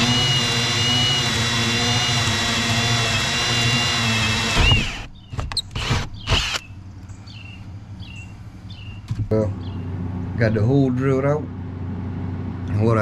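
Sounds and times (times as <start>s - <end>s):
cordless drill whining: 0.0s - 6.7s.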